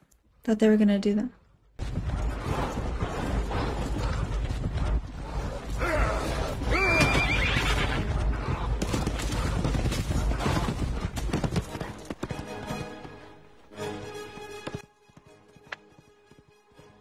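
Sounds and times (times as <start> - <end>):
hooves galloping: 1.8 - 17.0
horse whinnying: 5.7 - 8.2.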